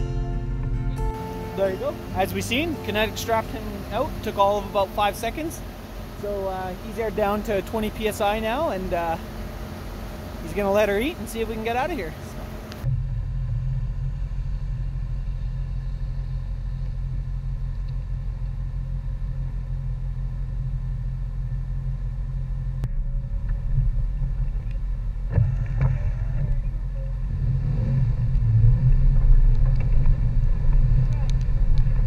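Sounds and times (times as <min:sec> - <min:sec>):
truck pulling away: 0:00.0 - 0:19.3
truck engine idling: 0:00.0 - 0:27.4.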